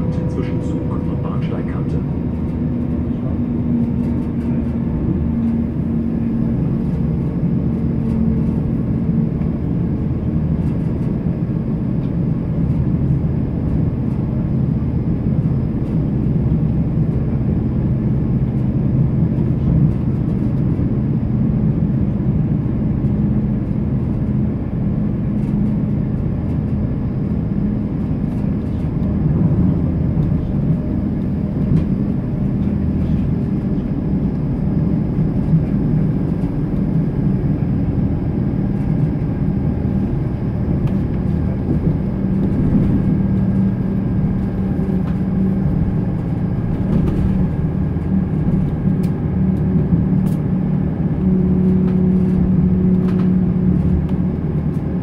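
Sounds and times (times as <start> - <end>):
model train running on track: 0.0 - 53.4.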